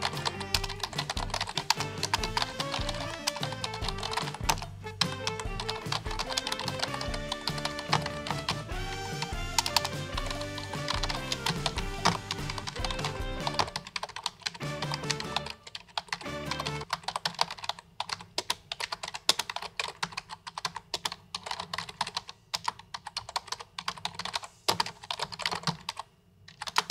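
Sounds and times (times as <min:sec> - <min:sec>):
background music: 0:00.0 - 0:16.9
computer keyboard typing: 0:00.0 - 0:26.9.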